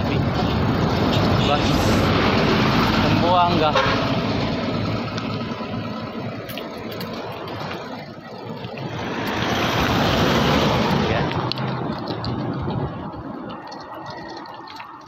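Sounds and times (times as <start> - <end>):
wind rushing over microphone: 0.0 - 3.3, 8.5 - 15.0
traffic noise: 0.0 - 15.0
bicycle tyre noise: 6.8 - 15.0.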